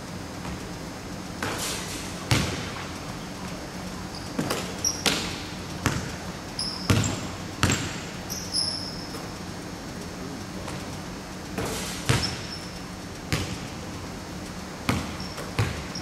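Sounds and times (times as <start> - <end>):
basketball bouncing on hardwood floor: 2.3 - 2.8, 4.4 - 8.0, 11.6 - 12.6, 13.3 - 13.7, 14.9 - 16.0
sneaker squeaks: 4.1 - 9.3, 11.6 - 13.6, 14.9 - 16.0.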